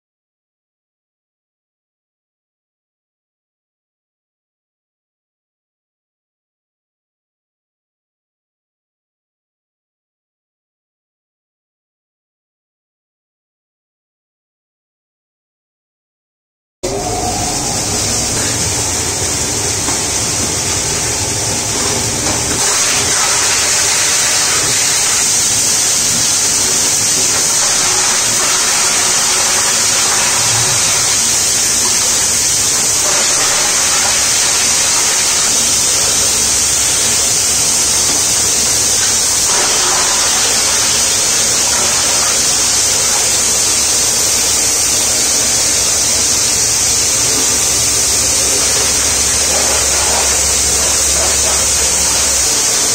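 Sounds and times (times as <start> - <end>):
blower air rushing: 16.8 - 52.9
low machine hum: 16.8 - 52.9.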